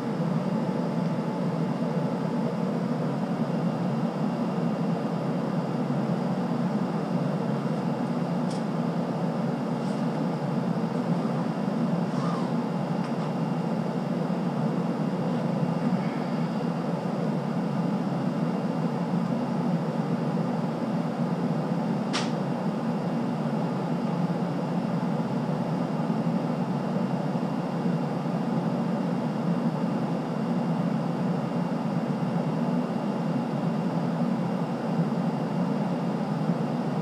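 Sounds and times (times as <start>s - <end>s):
sharp click: 22.1s - 22.4s.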